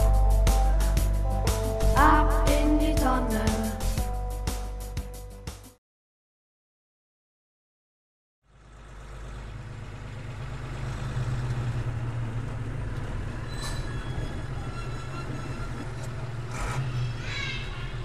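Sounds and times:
bus engines rumbling: 8.5s - 18.0s.

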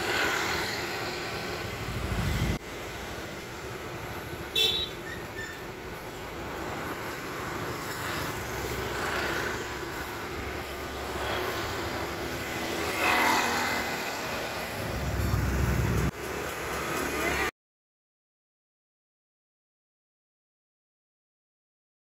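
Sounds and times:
motorbike engines passing: 0.0s - 17.5s
low rumble: 1.6s - 2.6s.

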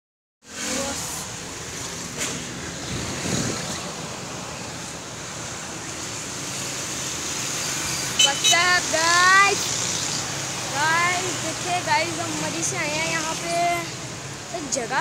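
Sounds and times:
street traffic: 0.4s - 15.0s
wind on microphone: 2.8s - 4.1s.

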